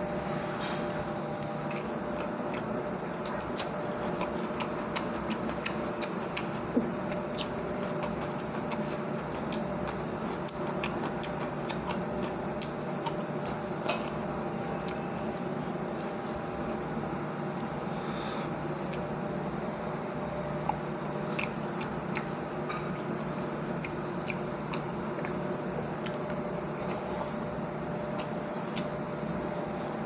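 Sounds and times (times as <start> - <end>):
steady hum: 0.0 - 30.0
chewing food: 0.8 - 29.8
wet mouth clicks and lip smacks: 1.4 - 13.2, 20.6 - 25.4, 28.1 - 29.0.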